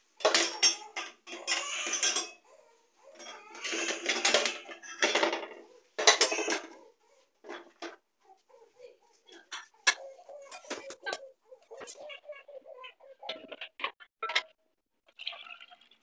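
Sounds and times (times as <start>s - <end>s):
metal stove parts clinking and scraping: 0.2s - 2.4s, 3.2s - 6.8s, 7.4s - 8.0s, 9.3s - 12.0s.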